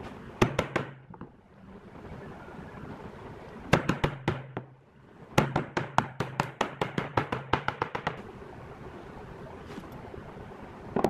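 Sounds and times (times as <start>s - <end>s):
hammer tapping wood: 5.4s - 8.2s.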